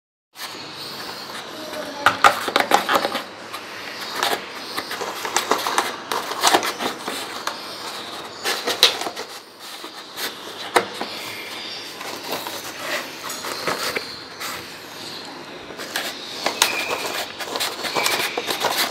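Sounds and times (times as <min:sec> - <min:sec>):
plastic parts clattering and rattling: 0:02.0 - 0:03.3
grater crunching nuts: 0:15.8 - 0:18.9.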